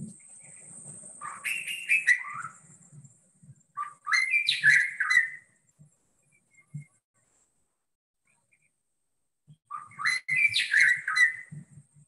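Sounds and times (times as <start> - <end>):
bird whistling song: 0.2 - 2.7, 3.7 - 5.6, 6.2 - 7.0, 9.6 - 11.8.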